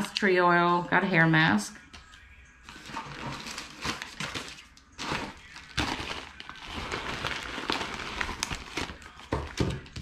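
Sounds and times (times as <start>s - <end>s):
paper packing material rustling: 2.6s - 10.0s.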